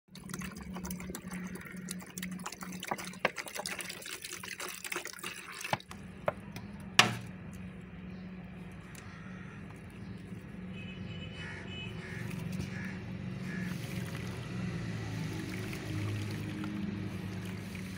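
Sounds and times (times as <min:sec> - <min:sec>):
water pouring into a plastic basin: 0:00.1 - 0:06.0, 0:12.1 - 0:17.9
water dripping: 0:00.1 - 0:07.7, 0:12.0 - 0:17.9.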